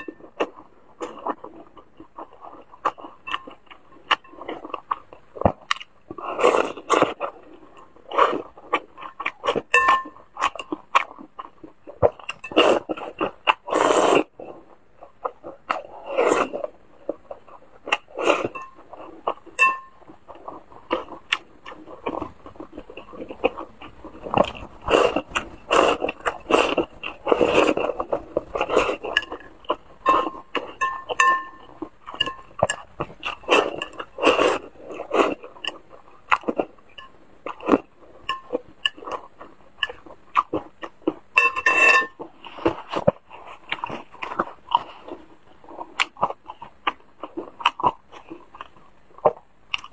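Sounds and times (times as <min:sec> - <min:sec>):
chewing and mouth sounds: 0:00.0 - 0:49.9
chopsticks clinking on ceramic bowl: 0:09.7 - 0:10.2, 0:19.6 - 0:20.0, 0:29.0 - 0:32.8, 0:38.2 - 0:39.1, 0:41.4 - 0:42.2.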